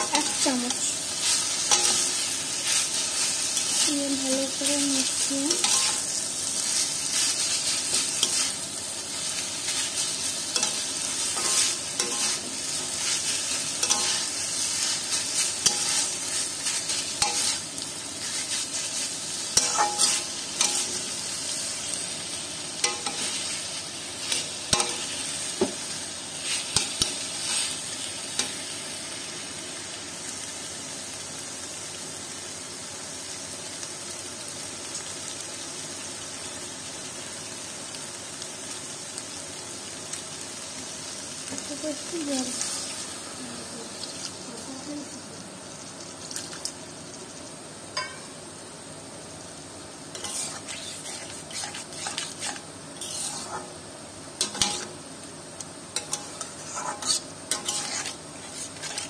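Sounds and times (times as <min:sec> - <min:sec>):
frying sizzle: 0:00.0 - 0:59.0
metal spatula scraping a pan: 0:05.5 - 0:06.1, 0:09.7 - 0:17.6, 0:18.2 - 0:21.0, 0:50.2 - 0:53.7, 0:54.4 - 0:54.9, 0:56.0 - 0:59.0.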